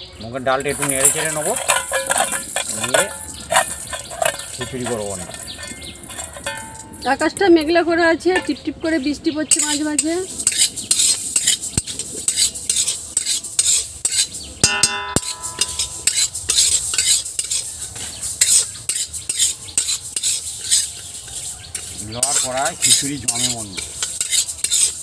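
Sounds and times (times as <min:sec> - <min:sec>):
grains rattling: 0:00.4 - 0:07.4
metal spatula scraping wok: 0:00.4 - 0:07.4, 0:09.5 - 0:25.0.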